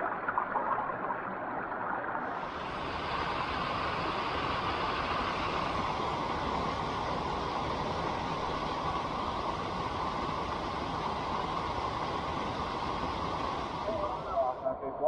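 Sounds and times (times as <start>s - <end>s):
stream rushing over rocks: 2.3s - 14.6s.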